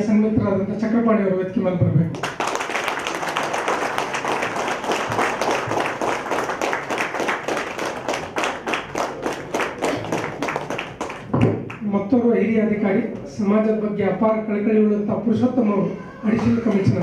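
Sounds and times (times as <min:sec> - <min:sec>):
audience clapping: 0:02.1 - 0:11.8, 0:16.3 - 0:17.0.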